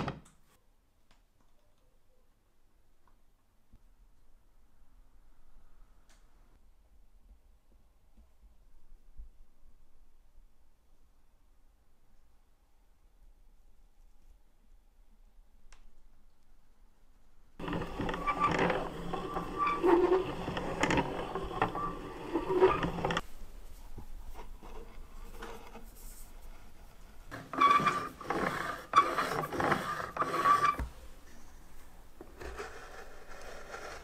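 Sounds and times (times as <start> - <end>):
manual coffee grinder scraping and rattling: 17.6 - 23.2, 27.2 - 30.9.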